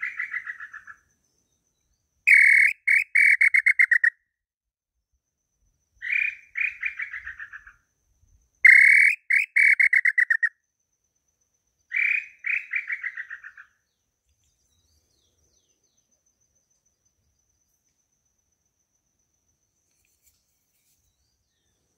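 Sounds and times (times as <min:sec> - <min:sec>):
bird call whistle: 0:02.3 - 0:04.2, 0:08.6 - 0:10.5.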